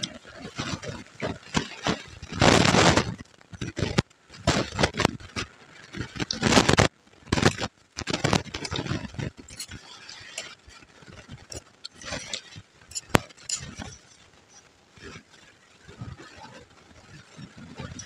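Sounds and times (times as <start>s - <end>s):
chewing and crunching puffed rice: 0.0s - 18.0s
metal spoon scraping plate: 7.4s - 10.7s, 11.3s - 14.3s.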